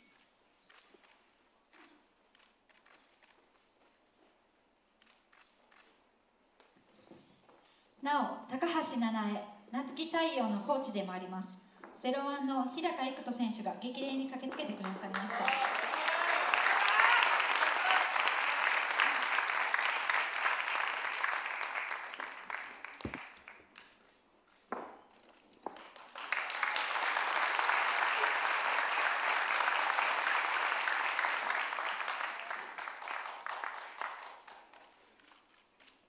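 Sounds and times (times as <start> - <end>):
audience applauding: 14.6 - 24.0, 25.7 - 35.4
single claps: 17.6 - 23.9.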